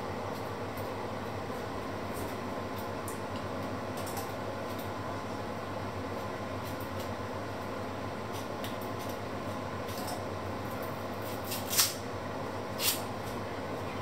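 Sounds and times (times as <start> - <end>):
steady low hum: 0.0 - 11.4
knife scraping onion skin: 11.2 - 12.0, 12.8 - 13.1.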